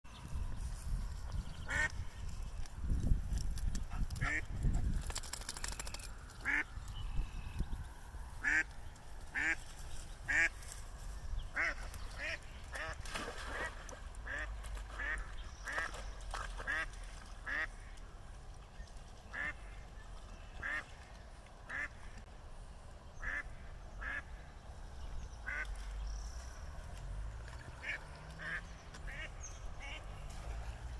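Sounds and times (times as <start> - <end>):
duck quacking: 21.7 - 21.9.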